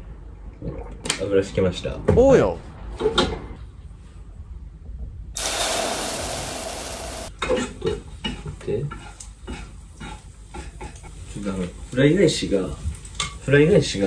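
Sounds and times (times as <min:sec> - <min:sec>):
egg sizzling in frying pan: 0:05.4 - 0:07.4.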